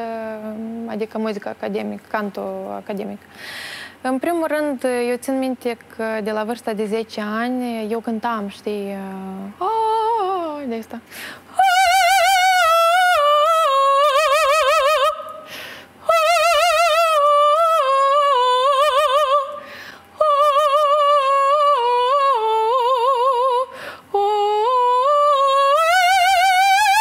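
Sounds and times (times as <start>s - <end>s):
woman singing operatic vocalise: 8.8s - 27.0s.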